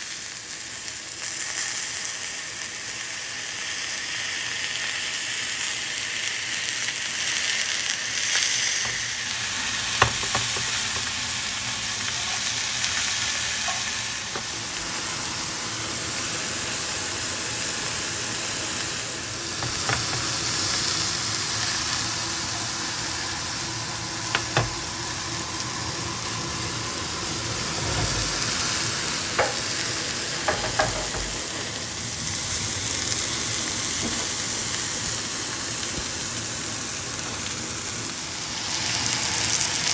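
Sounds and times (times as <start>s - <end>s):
steak sizzling in a pan: 0.0s - 39.9s
sharp pops of frying fat: 9.9s - 11.2s, 19.6s - 20.4s, 24.3s - 25.0s, 29.3s - 31.5s.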